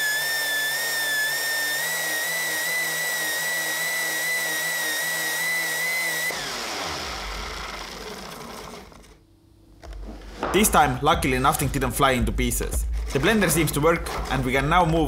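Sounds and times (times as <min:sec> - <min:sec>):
blender high-pitched whine: 0:00.0 - 0:09.2.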